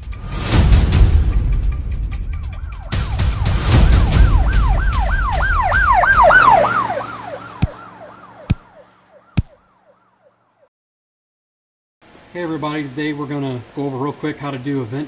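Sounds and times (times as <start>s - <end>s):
siren yelping: 2.5s - 10.4s
deep thumps: 9.4s - 9.6s.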